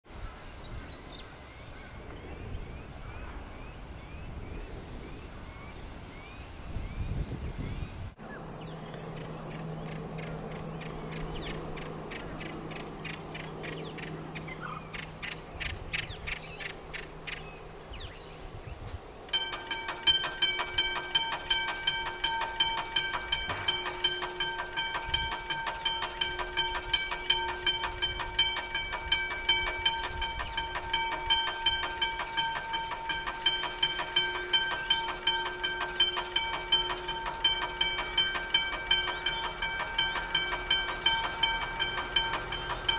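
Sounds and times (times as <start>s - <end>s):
steady high hiss: 0.1s - 42.9s
low hum: 8.2s - 42.9s
level crossing bell ringing: 19.4s - 42.9s.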